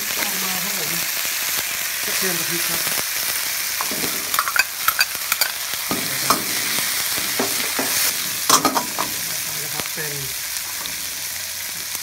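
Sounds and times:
meat sizzling in a wok: 0.0 - 12.0
metal ladle scraping a wok: 3.8 - 5.6.

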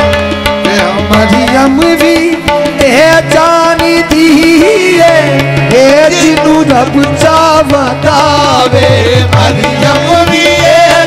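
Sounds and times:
harmonium: 0.0 - 11.0
tabla playing: 0.0 - 11.0.

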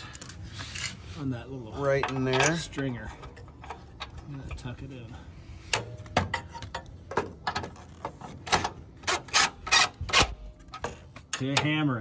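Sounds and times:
metal clicks and knocks: 5.7 - 11.9.

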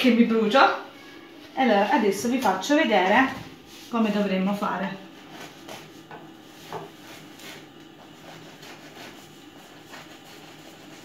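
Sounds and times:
knife sawing through bread: 5.2 - 11.0.

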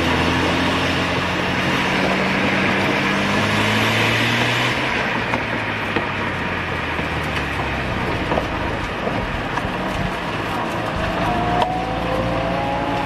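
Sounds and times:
tyre and road rumble: 0.0 - 13.0
rotary engine note: 11.0 - 13.0.

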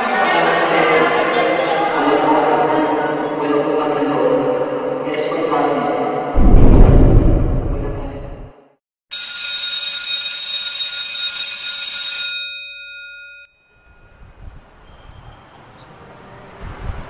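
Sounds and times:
school bell ringing: 9.1 - 14.2.

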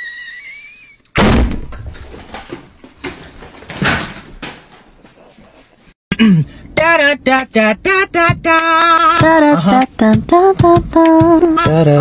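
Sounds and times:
loud slam-like impact: 1.2 - 1.7.

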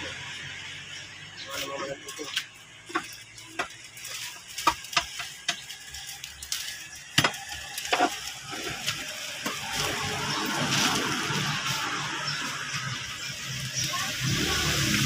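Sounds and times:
hiss: 3.6 - 15.0.

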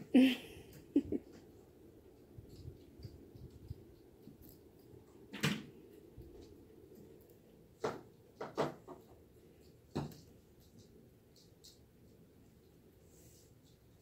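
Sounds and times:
faint room noise: 0.0 - 14.0
kitten tapping and thumping: 7.8 - 9.1.

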